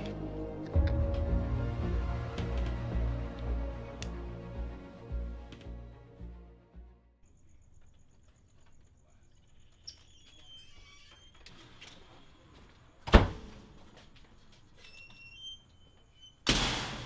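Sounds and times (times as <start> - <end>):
metal screen door banging shut: 13.0 - 13.7, 16.3 - 17.0.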